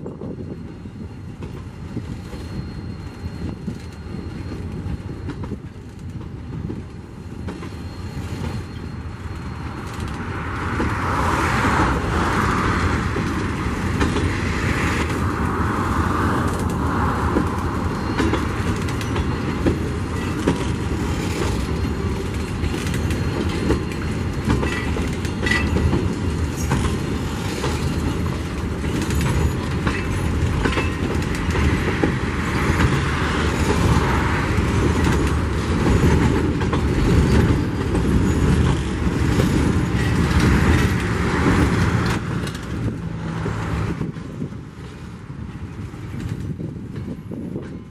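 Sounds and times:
train wheels rumbling on rail: 0:00.0 - 0:47.9
wheels and couplings clattering: 0:16.4 - 0:47.9.

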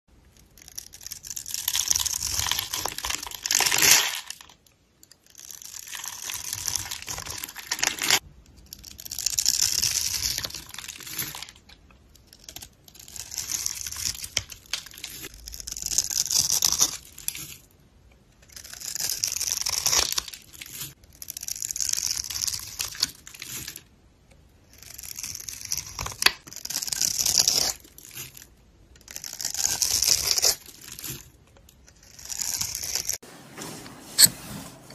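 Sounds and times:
soap cubes crunching: 0:00.6 - 0:04.5.

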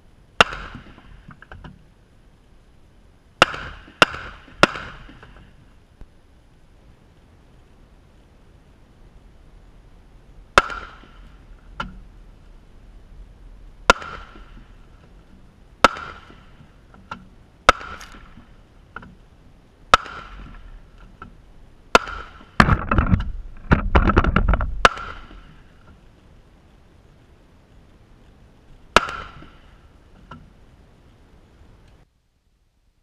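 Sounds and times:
wind rumbling on microphone: 0:03.8 - 0:32.1.

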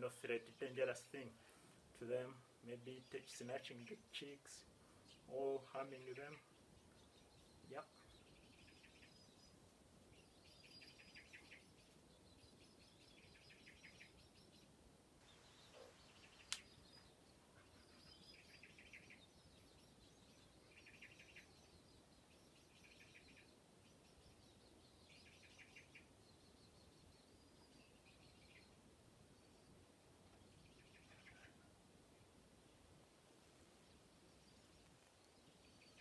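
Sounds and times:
faint chirping trills: 0:05.0 - 0:32.9.

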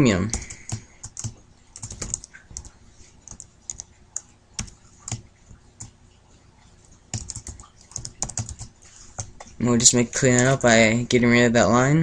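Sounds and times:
keyboard keys clicking: 0:00.3 - 0:06.0, 0:07.1 - 0:09.6.

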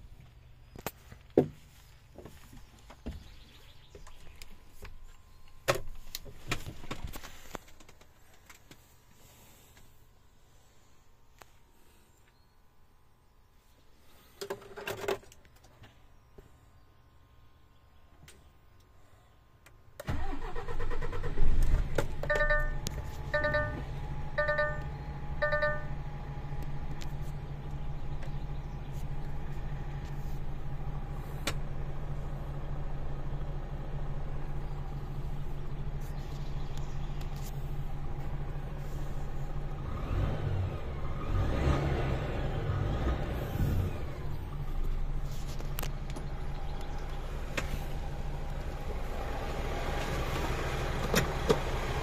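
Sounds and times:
diesel engine cranking and idling: 0:18.4 - 0:52.0
dashboard warning beeps: 0:22.2 - 0:26.0
engine revving: 0:34.3 - 0:52.0.

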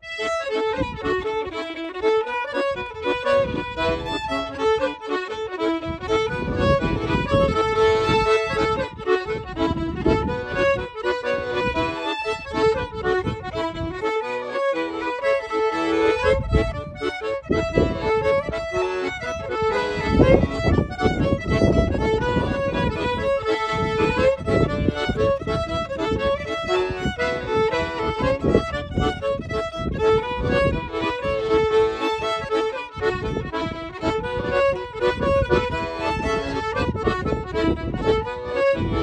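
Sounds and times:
accordion playing jigs: 0:00.0 - 0:39.0
fiddle playing jigs: 0:00.0 - 0:39.0.

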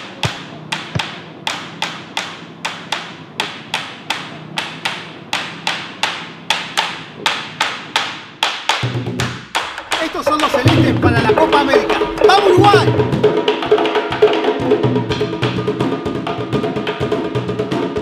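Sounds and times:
sharp rhythmic taps: 0:00.0 - 0:14.5.

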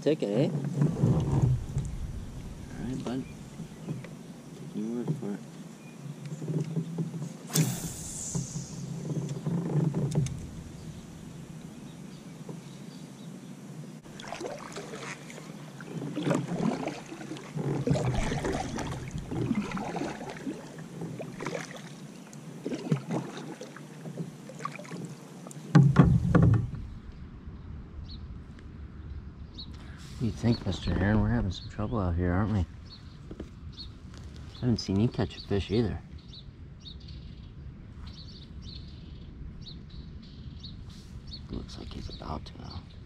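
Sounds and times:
kayak paddle strokes in water: 0:06.2 - 0:11.8, 0:14.0 - 0:26.8
sharp knock: 0:07.5 - 0:08.7.

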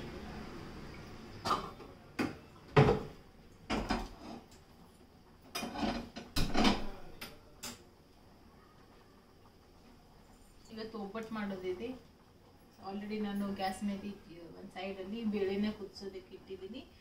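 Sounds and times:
kitchen utensils knocking and clinking: 0:03.7 - 0:04.5, 0:05.5 - 0:07.8.

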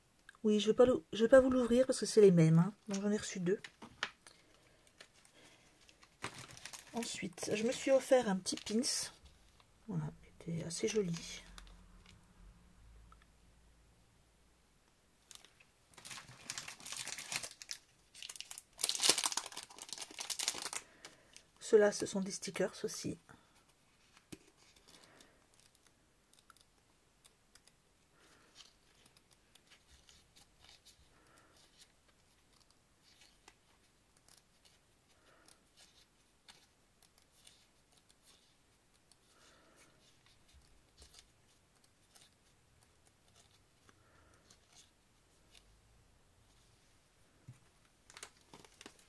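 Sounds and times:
paper sticker sheets rustling: 0:04.9 - 0:09.6, 0:15.2 - 0:21.2, 0:28.2 - 0:34.8, 0:35.4 - 0:45.7, 0:48.0 - 0:49.0.

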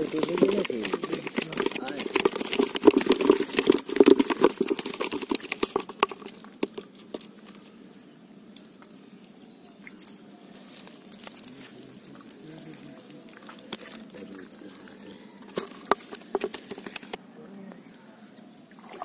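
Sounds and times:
fish flapping in wet net: 0:00.0 - 0:07.8.

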